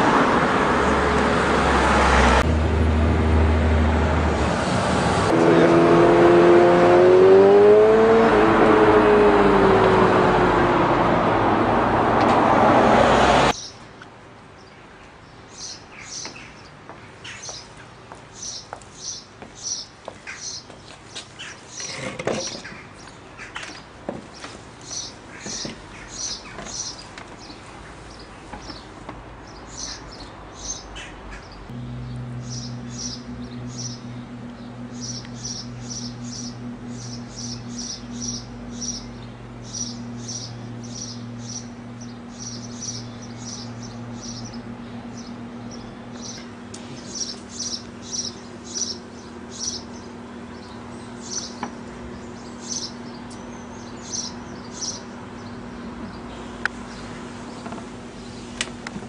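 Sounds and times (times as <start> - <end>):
small birds chirping: 13.5 - 58.9.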